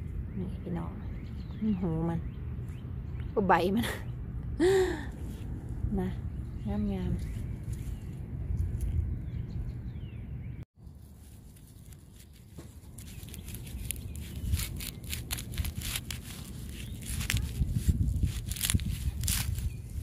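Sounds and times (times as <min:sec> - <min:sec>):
rustling of wet plants: 0:07.1 - 0:09.1, 0:10.8 - 0:20.0.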